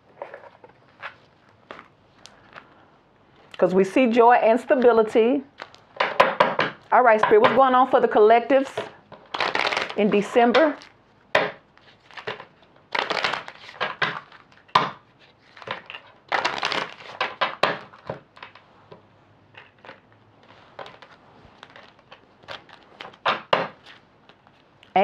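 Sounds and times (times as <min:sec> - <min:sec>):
cards being shuffled: 0:00.1 - 0:02.8, 0:04.7 - 0:06.9, 0:08.7 - 0:11.0, 0:11.7 - 0:19.0, 0:19.6 - 0:25.0.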